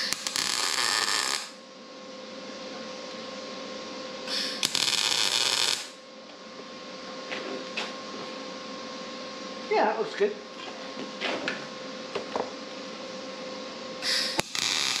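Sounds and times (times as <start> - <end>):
welder arc sizzling: 0.0 - 1.6, 4.3 - 6.0, 14.0 - 15.0
steady hum: 0.0 - 15.0.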